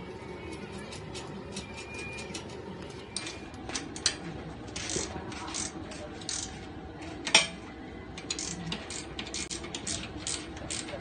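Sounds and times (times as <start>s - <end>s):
ratchet wrench clicking: 8.2s - 10.9s.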